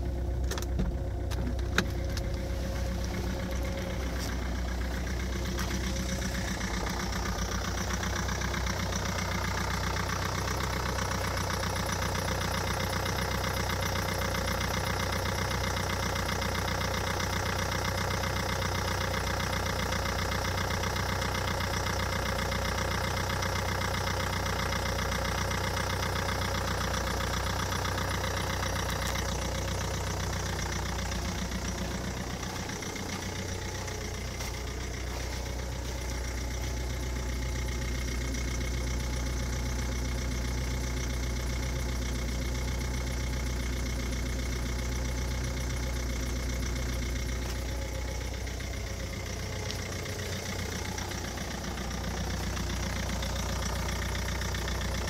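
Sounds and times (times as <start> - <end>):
diesel engine idling with clatter: 0.0 - 55.0.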